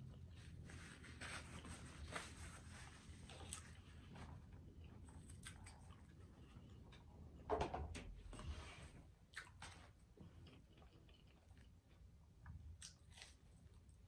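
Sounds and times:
chewing with mouth clicks: 3.2 - 7.1, 9.3 - 14.0.

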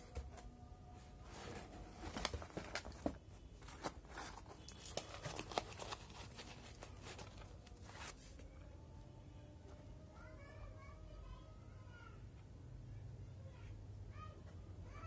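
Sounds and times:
shoe rustling in cardboard box: 1.1 - 8.3.

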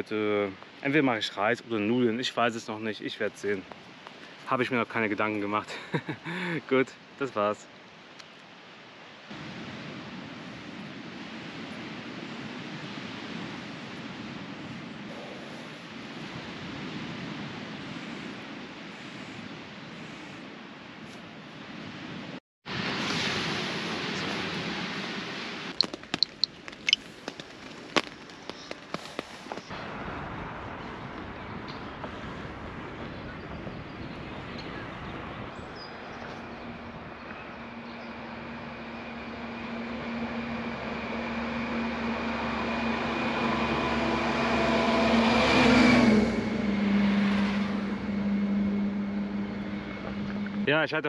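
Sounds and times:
road and wind noise: 0.0 - 51.0
sharp pops and cracks: 25.7 - 29.7
lorry passing: 36.0 - 51.0.

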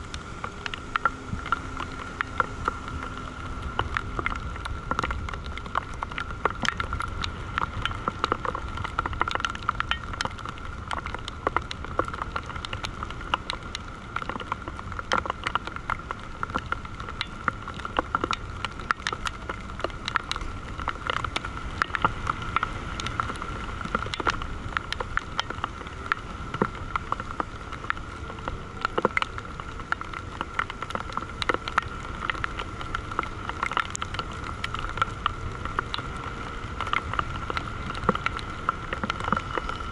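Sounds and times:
crackling clicks: 0.0 - 39.9.

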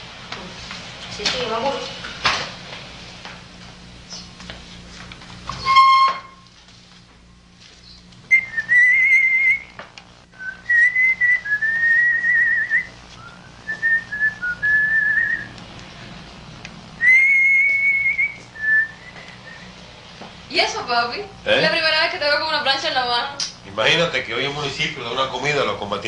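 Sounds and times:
person whistling a tune: 10.4 - 15.5, 17.0 - 19.7.

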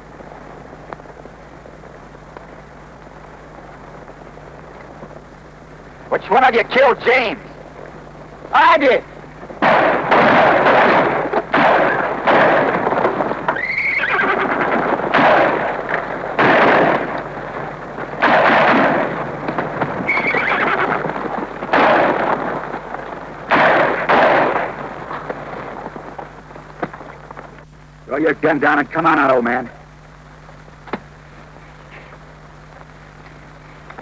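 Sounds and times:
echoing gunshots: 9.6 - 22.8, 23.4 - 26.0
horses whinnying: 13.5 - 15.6, 20.0 - 22.2.

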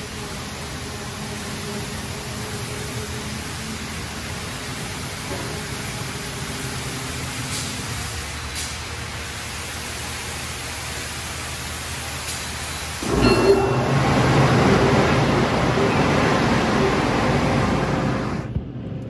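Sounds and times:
hiss of water spray: 0.0 - 13.0
rush of spray jets on car: 0.0 - 13.0.

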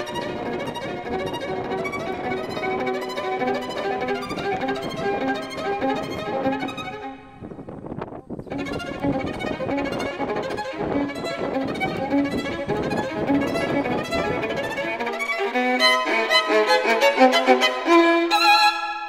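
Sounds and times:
low accompaniment: 0.0 - 18.8
violin tune: 0.0 - 19.0.

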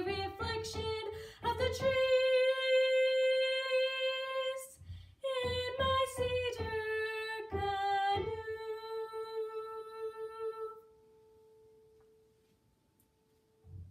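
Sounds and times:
girl singing unaccompanied: 0.0 - 10.9.

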